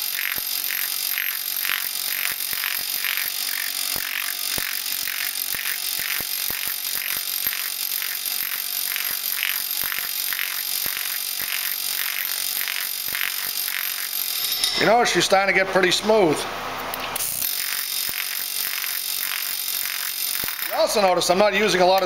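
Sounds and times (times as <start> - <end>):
pneumatic hammer pulsing on sheet metal: 0.0 - 14.7, 17.2 - 20.8.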